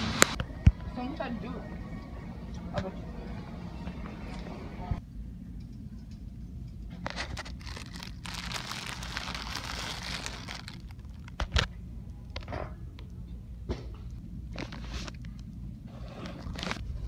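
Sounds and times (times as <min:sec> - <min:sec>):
steady low hum: 0:00.0 - 0:17.0
plastic wrapping crinkling: 0:07.1 - 0:11.7, 0:16.2 - 0:16.8.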